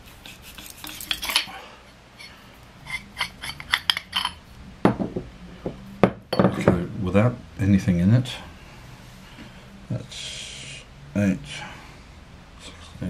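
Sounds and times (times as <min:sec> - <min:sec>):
metal tubes clicking and scraping: 0:00.2 - 0:01.5, 0:02.2 - 0:04.4.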